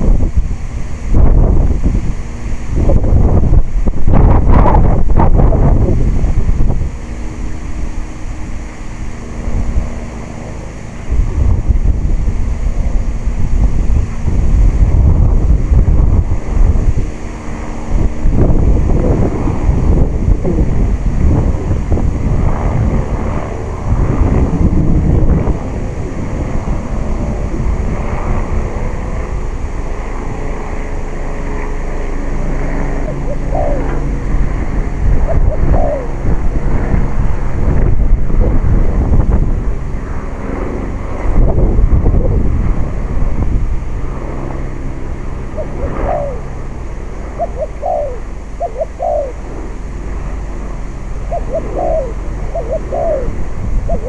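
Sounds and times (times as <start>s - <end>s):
wind buffeting microphone: 0.0s - 54.0s
dove cooing: 32.9s - 36.5s, 45.5s - 50.0s, 51.0s - 54.0s.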